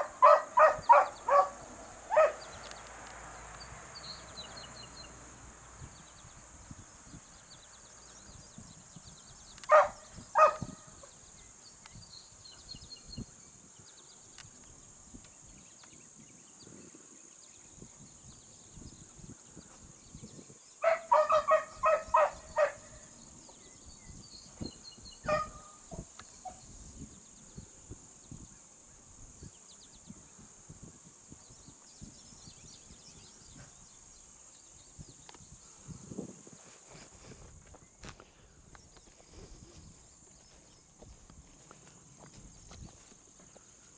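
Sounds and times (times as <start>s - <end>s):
dogs barking: 0.0s - 2.5s, 9.7s - 10.7s, 20.8s - 22.9s, 25.2s - 25.7s.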